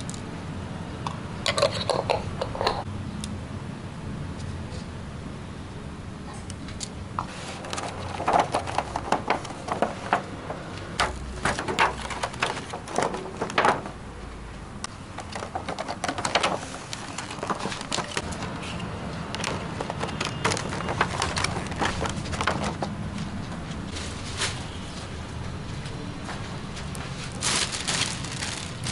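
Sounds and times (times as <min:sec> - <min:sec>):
plastic container crackling: 0:07.3 - 0:14.0, 0:15.2 - 0:18.4, 0:19.4 - 0:23.0, 0:27.3 - 0:28.9.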